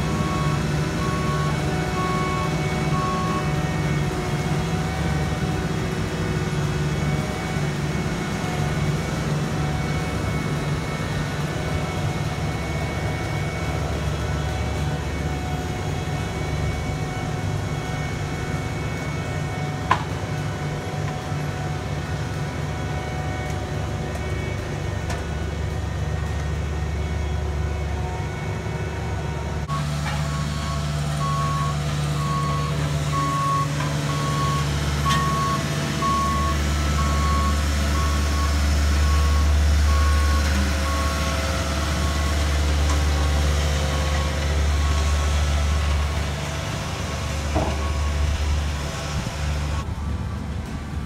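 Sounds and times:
paving machine diesel engines rumbling: 0:00.0 - 0:51.0
backup alarm beeping: 0:29.7 - 0:42.4.

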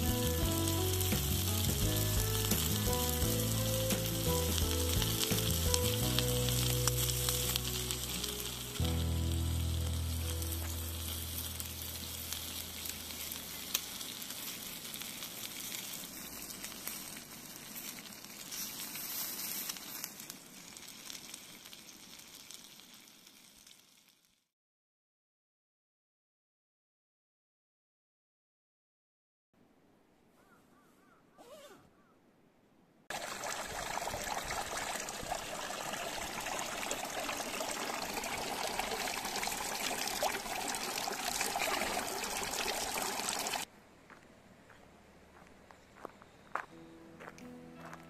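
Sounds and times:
background music: 0:00.0 - 0:13.4, 0:46.6 - 0:48.0
meat sizzling in skillet: 0:00.0 - 0:24.4, 0:33.1 - 0:43.7.

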